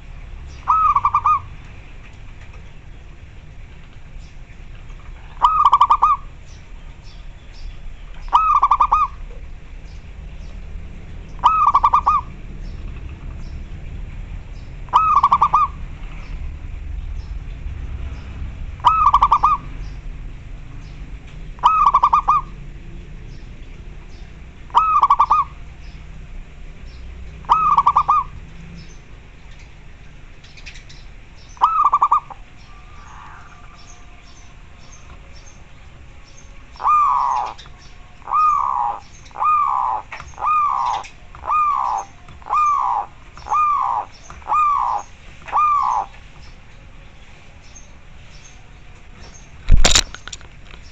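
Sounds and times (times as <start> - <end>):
dove cooing: 0.6 - 1.5, 5.1 - 6.4, 8.3 - 9.4, 11.4 - 12.5, 14.8 - 15.8, 18.8 - 19.8, 21.6 - 22.6, 24.7 - 25.6, 27.4 - 28.4, 31.6 - 34.2, 36.8 - 46.1.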